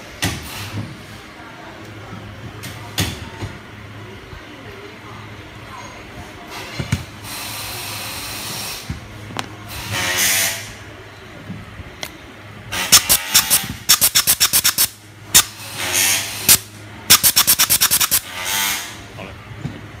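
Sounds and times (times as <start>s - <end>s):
compressed air hissing from blow gun: 12.9s - 15.0s, 16.5s - 18.2s.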